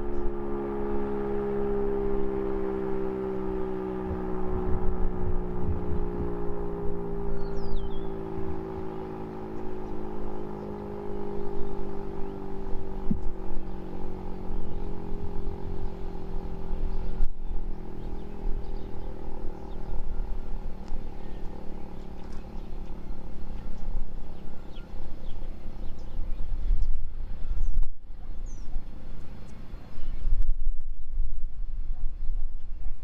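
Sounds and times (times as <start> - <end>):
warning siren steady tone: 0.0 - 29.9
wind rumble on microphone: 0.0 - 33.0.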